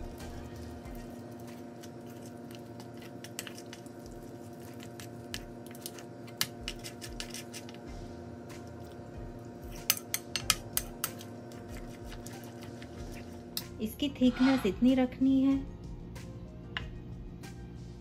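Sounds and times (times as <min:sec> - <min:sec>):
steady low hum: 0:00.0 - 0:18.0
spoon stirring thick batter: 0:00.8 - 0:07.8, 0:09.6 - 0:13.6
spoon clinking against bowl: 0:09.7 - 0:11.2.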